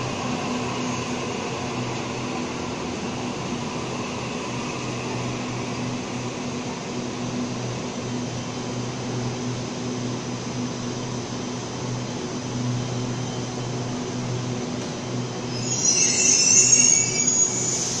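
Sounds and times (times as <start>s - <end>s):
electric train rolling in: 0.0s - 18.0s
high-pitched brake squeal: 15.4s - 18.0s.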